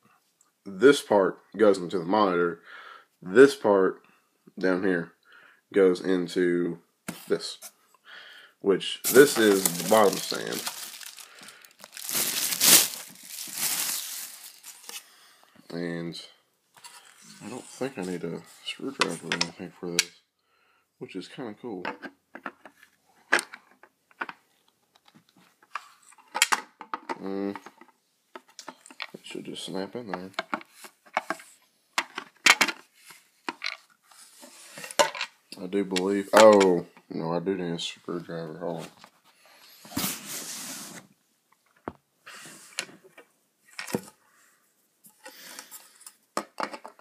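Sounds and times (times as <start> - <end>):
rustling: 9.1 - 15.2
plastic parts clicking and knocking: 21.8 - 29.2, 30.1 - 33.9, 34.8 - 35.4, 46.4 - 47.0.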